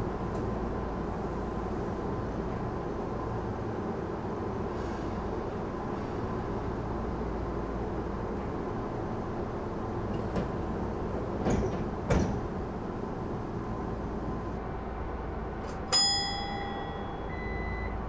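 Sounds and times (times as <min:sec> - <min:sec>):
train equipment low rumble: 0:00.0 - 0:18.0
bell-like ding: 0:15.9 - 0:17.8.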